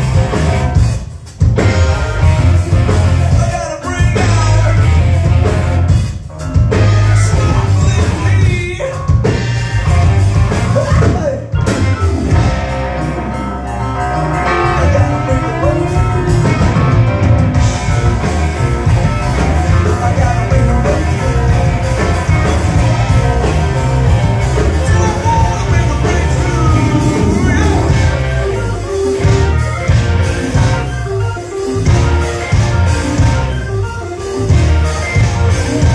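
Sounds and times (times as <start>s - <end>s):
drum kit: 0.0s - 35.9s
electric bass: 0.0s - 35.9s
keyboards: 0.0s - 35.9s
person singing: 14.4s - 16.8s, 24.6s - 28.7s.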